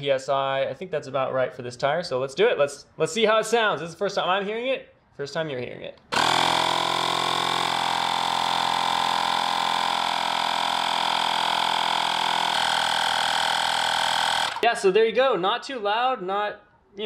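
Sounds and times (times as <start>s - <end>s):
portable air compressor humming: 6.1s - 14.6s.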